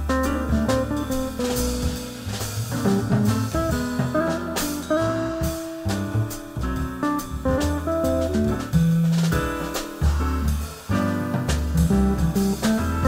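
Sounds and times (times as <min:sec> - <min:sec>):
drums: 0:00.0 - 0:13.0
jazz guitar: 0:00.0 - 0:13.0
upright bass: 0:00.0 - 0:13.0.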